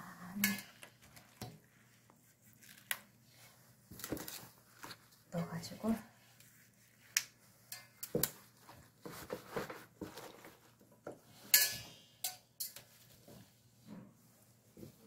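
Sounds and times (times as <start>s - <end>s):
wet leaves being handled: 0.2s - 10.8s.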